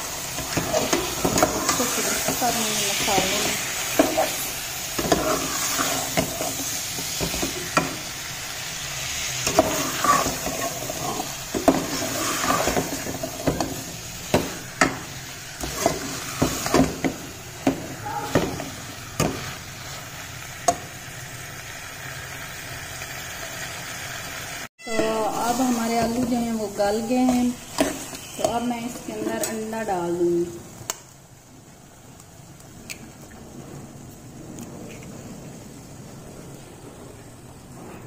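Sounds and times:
frying sizzle: 0.0 - 38.0
metal spoon scraping a pot: 9.4 - 13.8, 27.2 - 29.6.

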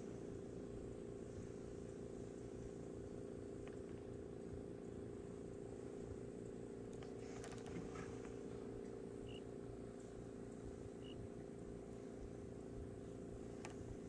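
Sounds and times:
low mechanical hum: 0.0 - 14.0
faint high chirps: 11.0 - 11.3.

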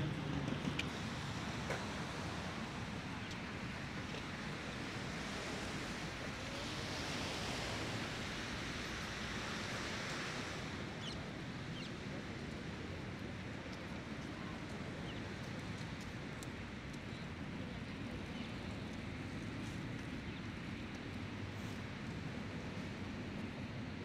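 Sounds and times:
waves washing onto shingle: 0.9 - 11.6.

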